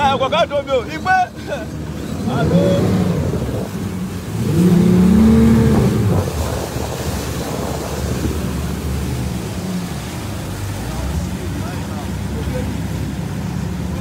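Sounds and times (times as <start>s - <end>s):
speedboat outboard motors: 0.0s - 14.0s
water rushing past hull: 0.0s - 14.0s
rising and falling tone: 4.4s - 6.6s.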